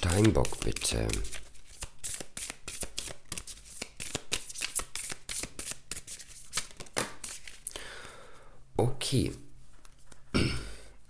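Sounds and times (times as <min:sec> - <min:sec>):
cards being shuffled: 0:00.0 - 0:07.7.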